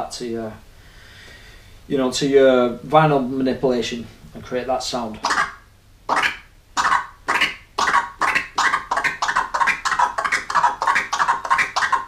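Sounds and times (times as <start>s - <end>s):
turntable scratching with stuttering chops: 6.1s - 12.0s.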